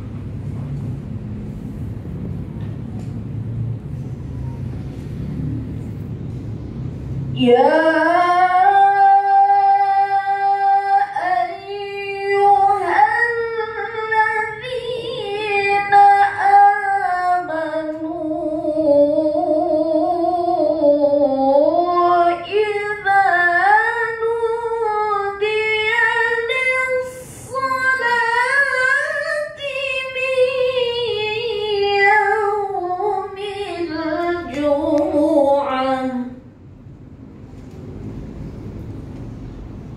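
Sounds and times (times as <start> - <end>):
woman chanting melodically: 7.4 - 36.5.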